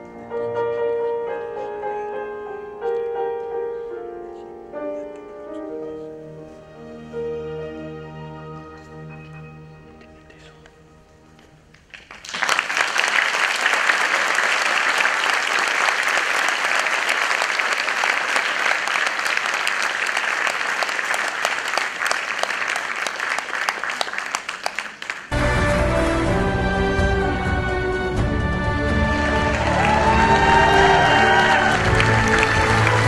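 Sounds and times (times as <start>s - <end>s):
piano and string orchestra: 0.0s - 12.2s, 24.7s - 33.0s
audience applauding: 11.8s - 25.4s, 28.8s - 33.0s.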